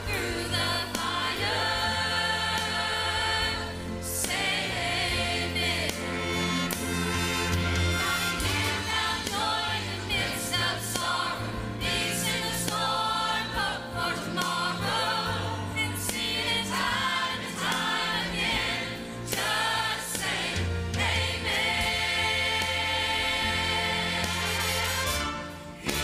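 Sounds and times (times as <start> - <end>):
low bass notes: 0.0 - 12.2
choir singing gospel: 0.0 - 26.0
brass trumpets playing: 6.2 - 9.2, 24.4 - 26.0.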